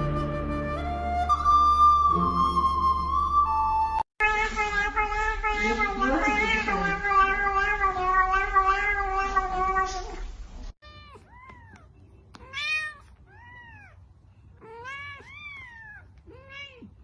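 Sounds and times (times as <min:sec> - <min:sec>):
cat yowling: 0:04.2 - 0:10.2, 0:10.8 - 0:14.0, 0:14.6 - 0:17.0.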